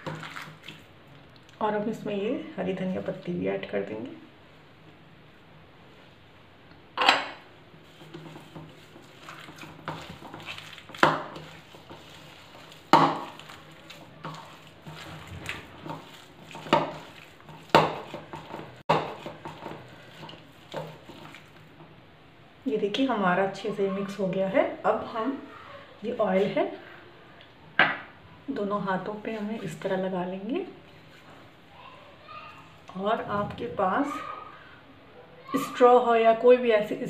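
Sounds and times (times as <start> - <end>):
kneading mixture by hand: 0.0 - 1.1, 7.7 - 22.0, 28.5 - 34.6.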